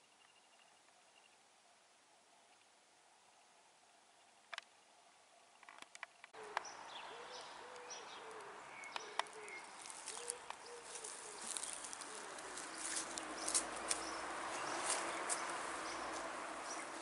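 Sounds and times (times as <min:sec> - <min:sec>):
small birds chirping: 0:03.5 - 0:17.0
pigeon cooing: 0:06.4 - 0:15.1.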